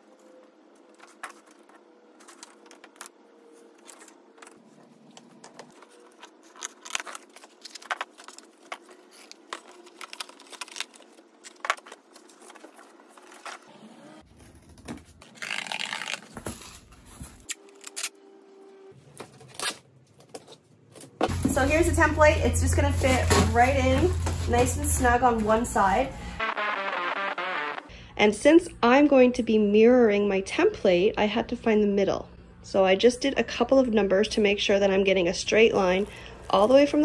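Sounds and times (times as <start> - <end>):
cardboard rustling and scraping: 0.9 - 13.7, 19.0 - 26.0
packing tape pulled off roll: 15.2 - 18.2.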